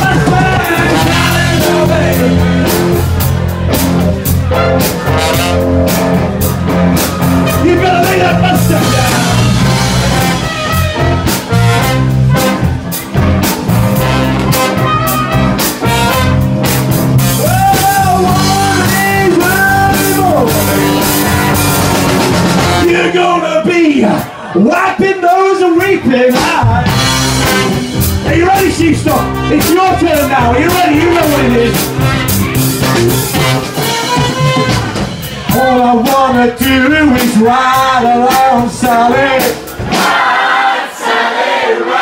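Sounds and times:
live funk band: 0:00.0 - 0:23.2, 0:24.0 - 0:40.6
brass section: 0:00.0 - 0:23.5, 0:26.7 - 0:36.2.

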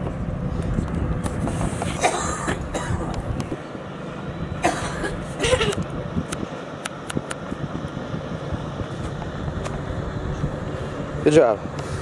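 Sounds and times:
low outdoor rumble: 0:00.0 - 0:12.0
person coughing: 0:02.0 - 0:03.1, 0:04.6 - 0:05.8.

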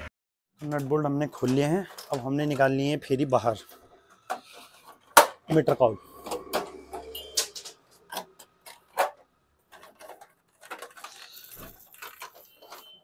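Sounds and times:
plastic clicks knocks and rattles: 0:00.6 - 0:03.0, 0:08.1 - 0:13.0.

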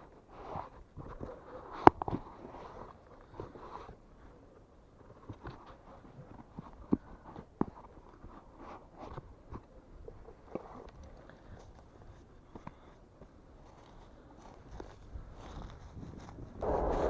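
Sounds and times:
footsteps crunching dry grass: 0:11.5 - 0:17.0.

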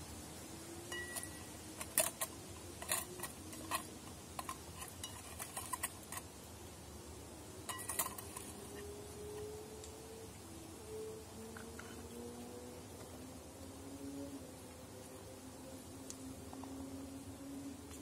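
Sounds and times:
metal utensil scraping steel pot: 0:00.9 - 0:06.3, 0:07.7 - 0:08.9.

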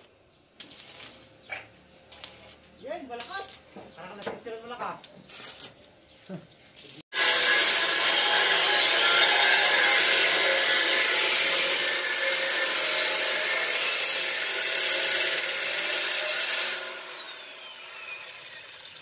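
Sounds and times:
angle grinder cutting steel: 0:07.1 - 0:19.0.

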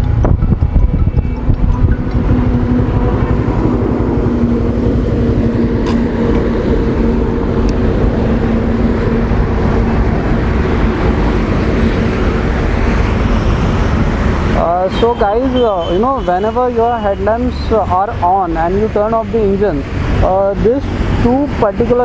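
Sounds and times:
motorcycle engine running: 0:00.0 - 0:11.9
wind rumble on microphone: 0:00.0 - 0:15.2.

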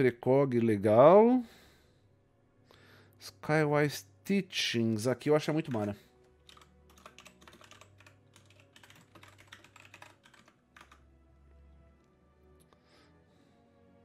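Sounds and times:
faint typing on computer keyboard: 0:05.6 - 0:11.0.

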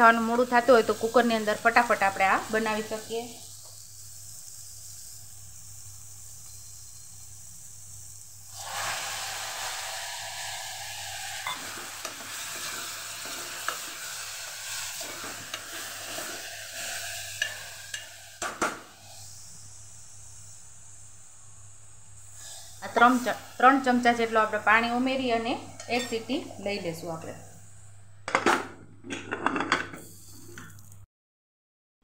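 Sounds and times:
beans sizzling in hot oil: 0:00.0 - 0:28.2
spoon scraping and clicking on pot: 0:17.4 - 0:18.1, 0:28.3 - 0:30.8.

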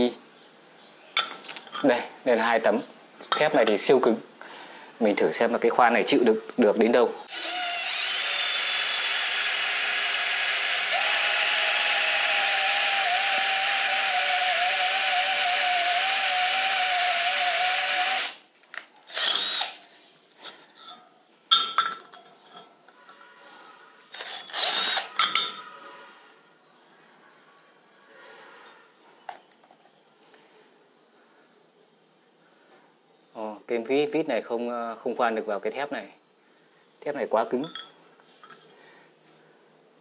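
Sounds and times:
cordless drill motor whine: 0:07.3 - 0:18.4, 0:19.1 - 0:19.8, 0:24.2 - 0:25.1
drill clicks and bursts: 0:07.3 - 0:19.8, 0:24.2 - 0:25.2.

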